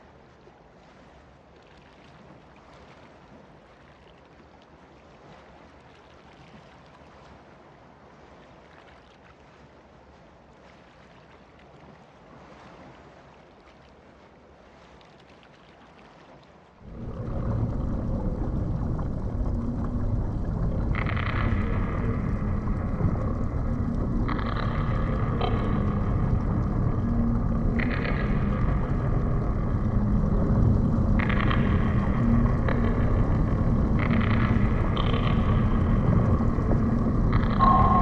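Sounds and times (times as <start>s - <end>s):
faint steady noise: 16.4s - 38.0s
loud low rumble: 16.8s - 38.0s.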